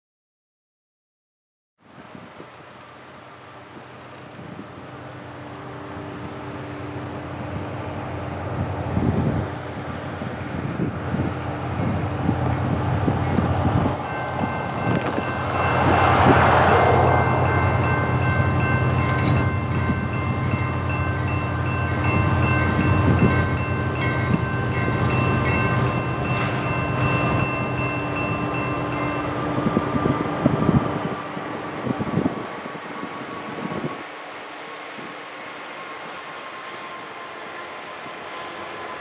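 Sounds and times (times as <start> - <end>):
diesel locomotive engine rumble: 1.9 - 39.0
loud rush of noise: 7.3 - 20.0
crossing bell ringing: 12.4 - 29.8.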